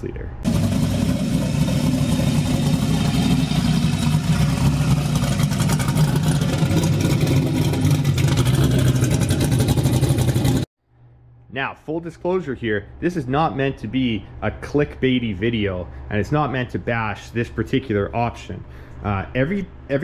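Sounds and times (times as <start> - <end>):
engine running steadily: 0.4 - 10.7.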